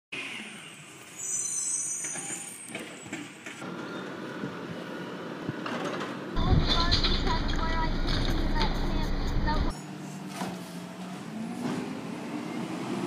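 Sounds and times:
high-pitched squeal: 0:00.2 - 0:03.2
garbage truck engine rumbling: 0:06.4 - 0:09.8.

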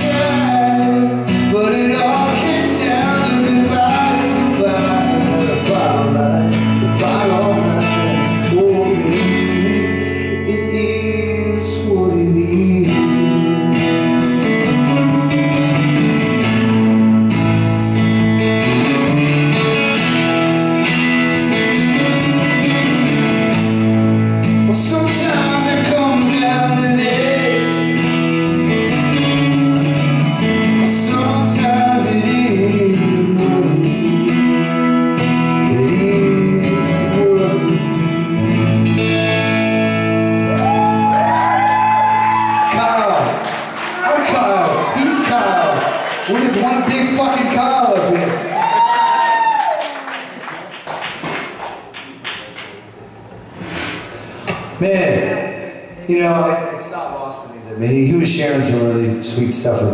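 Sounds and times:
man singing: 0:00.0 - 0:16.3, 0:24.6 - 0:28.2, 0:30.3 - 0:39.0
electric guitar: 0:00.0 - 0:50.5
acoustic guitar: 0:00.0 - 0:59.9.

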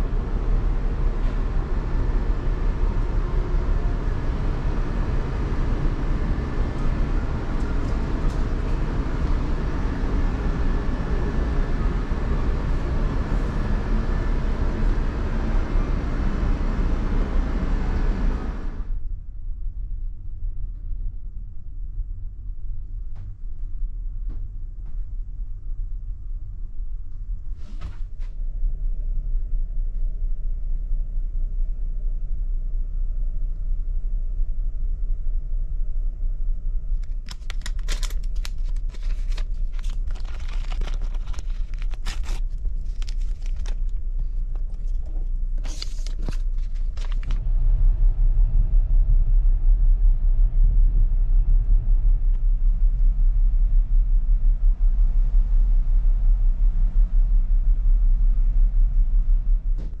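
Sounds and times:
ferry engine rumble: 0:00.0 - 0:19.7, 0:24.5 - 1:00.0
foil packet tearing: 0:37.0 - 0:47.4
paper bag unfolding: 0:37.0 - 0:47.4.

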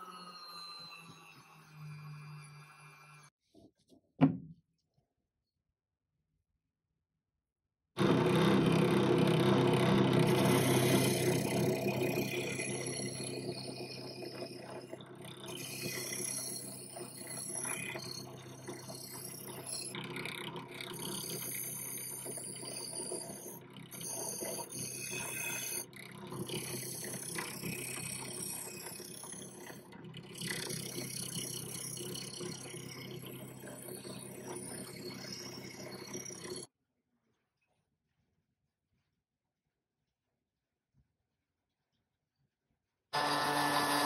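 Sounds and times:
drill press motor running: 0:08.0 - 0:36.6, 0:43.2 - 0:44.0.

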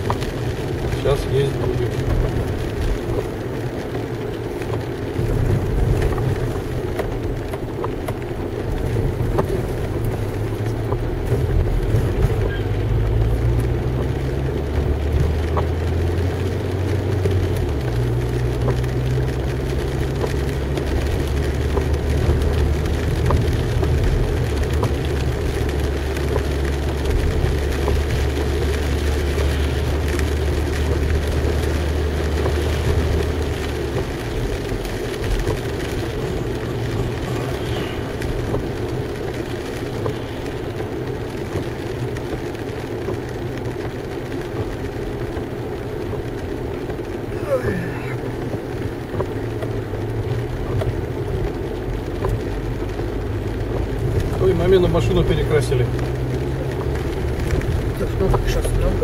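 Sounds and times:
car engine drone: 0:00.0 - 0:59.0
tyre noise on wet road: 0:00.0 - 0:59.0.

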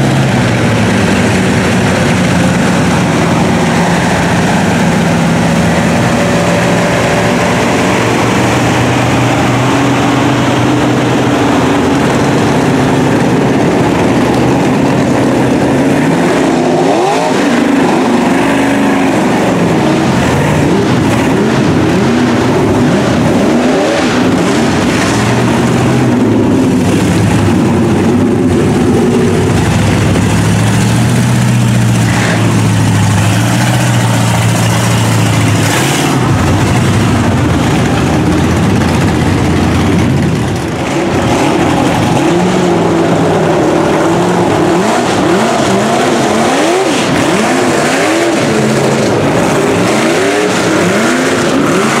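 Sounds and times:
truck engines revving: 0:00.0 - 0:52.0.

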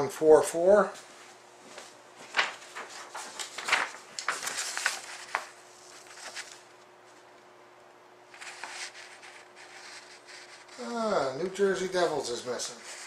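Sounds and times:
paper sheet rustling: 0:02.2 - 0:06.8, 0:08.3 - 0:11.0, 0:12.0 - 0:13.0.

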